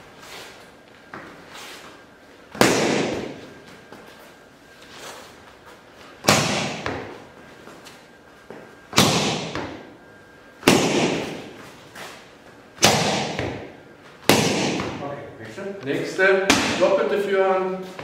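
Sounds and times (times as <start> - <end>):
punches smacking padded gear: 2.5 - 3.4, 6.2 - 7.1, 8.9 - 9.8, 10.6 - 11.5, 12.8 - 15.0.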